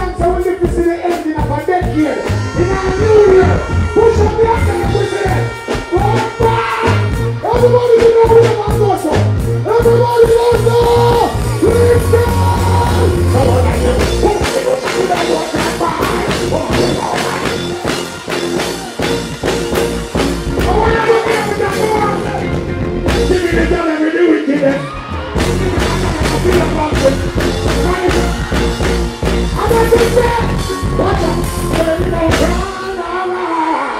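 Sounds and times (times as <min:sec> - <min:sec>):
reggae backing track drums and bass: 0:00.0 - 0:33.1
person singing: 0:09.8 - 0:17.9.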